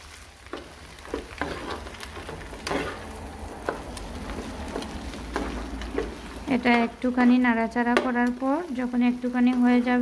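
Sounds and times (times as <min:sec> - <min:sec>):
frying sizzle: 0:00.0 - 0:10.0
spatula scraping a frying pan: 0:00.4 - 0:08.0.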